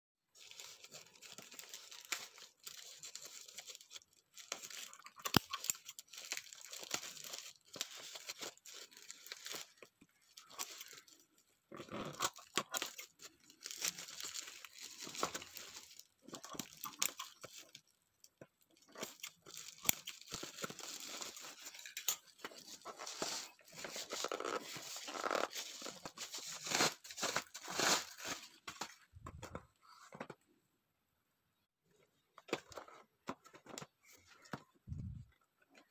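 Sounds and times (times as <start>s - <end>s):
bubble wrap crinkling and tearing: 0.3s - 17.9s, 18.6s - 29.1s
scissors cutting plastic: 0.4s - 29.0s.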